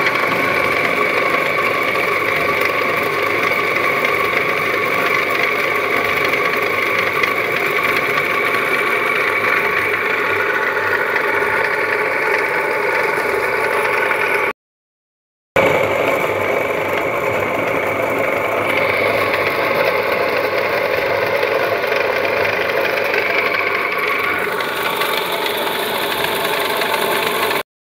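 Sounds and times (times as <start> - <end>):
electric motor whine: 0.0 - 14.5, 15.6 - 27.6
potatoes rattling through hopper: 17.0 - 27.6.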